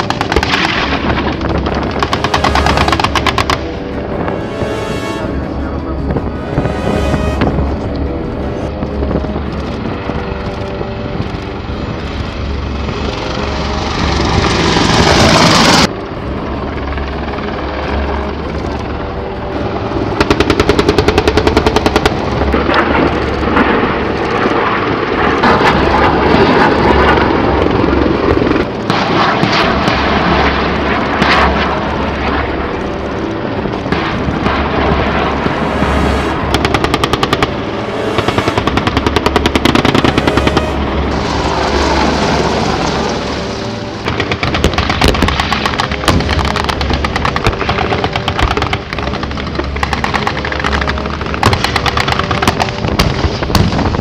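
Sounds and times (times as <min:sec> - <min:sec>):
helicopter rotor and turbine noise: 0:00.0 - 0:54.0
rising rush: 0:01.6 - 0:09.2, 0:34.8 - 0:44.1
rapid automatic gunfire: 0:44.1 - 0:49.2.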